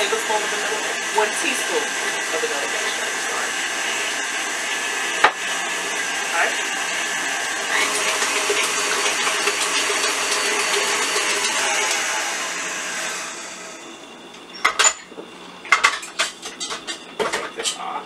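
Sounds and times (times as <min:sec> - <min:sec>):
stand mixer motor running: 0:00.0 - 0:14.0.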